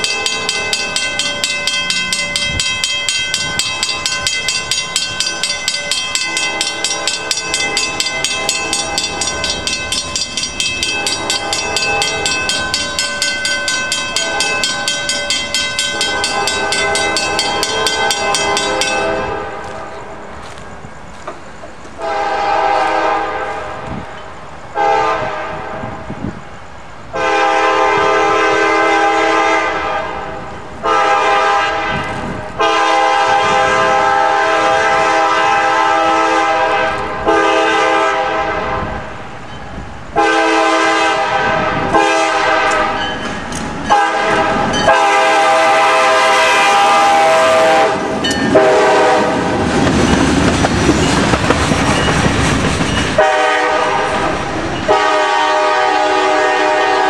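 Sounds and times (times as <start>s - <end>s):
train wheels clattering over rails: 0.0s - 22.6s, 38.9s - 57.0s
locomotive air horn blasts: 18.0s - 20.0s, 22.0s - 23.8s, 24.8s - 25.8s, 27.2s - 39.0s, 40.2s - 43.0s, 43.9s - 49.4s, 53.2s - 54.2s, 54.9s - 57.0s.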